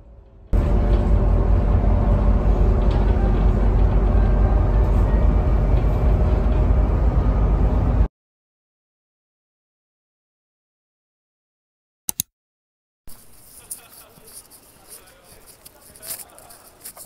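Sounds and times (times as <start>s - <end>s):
bus engine and road rumble: 0.0s - 8.1s.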